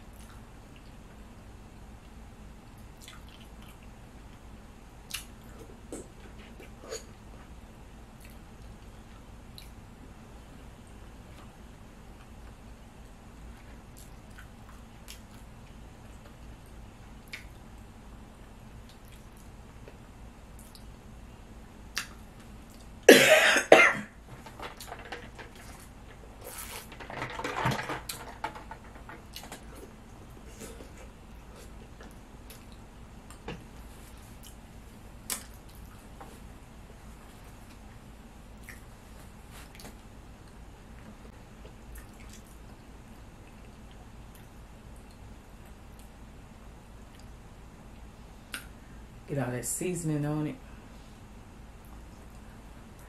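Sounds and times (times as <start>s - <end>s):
clicks and squishes of eating shrimp: 2.8s - 7.3s, 8.1s - 9.8s, 13.5s - 16.5s, 17.2s - 21.0s, 24.4s - 36.1s, 38.6s - 39.0s, 41.5s - 46.2s, 47.0s - 48.8s
woman coughing: 23.1s - 24.2s.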